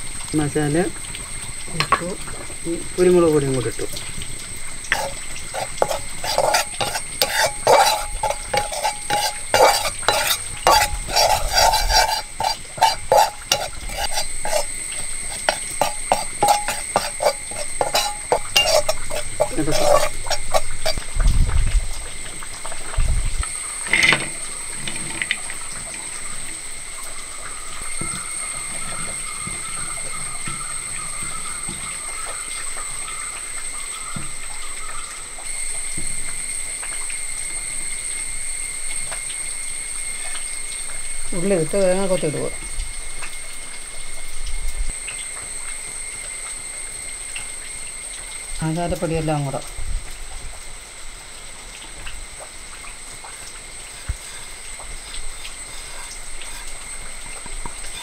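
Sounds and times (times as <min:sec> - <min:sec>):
spoon scraping metal wok: 0:04.9 - 0:21.1, 0:53.9 - 0:58.0.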